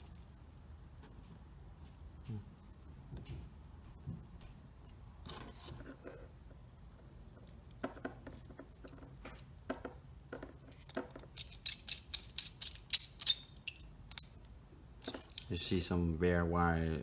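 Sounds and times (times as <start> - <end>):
screwdriver clicks and metallic clinks: 10.6 - 14.4, 15.0 - 15.6.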